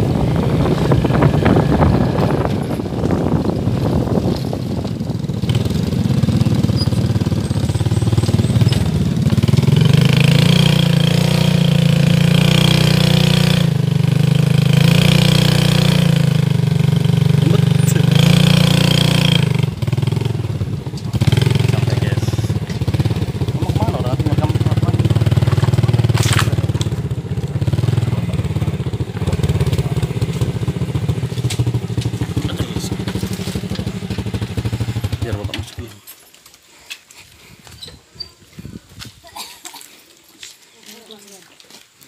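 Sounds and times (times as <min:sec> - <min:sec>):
wind on microphone: 0:00.0 - 0:06.2, 0:37.4 - 0:39.4
motorcycle engine running: 0:00.0 - 0:36.0
motorcycle idling: 0:00.0 - 0:36.0.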